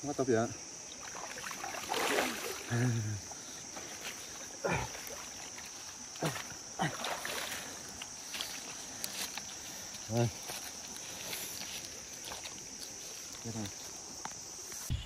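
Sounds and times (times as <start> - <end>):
high insect drone: 0.0 - 15.0
water splashing and gurgling: 0.9 - 3.1, 4.4 - 8.0.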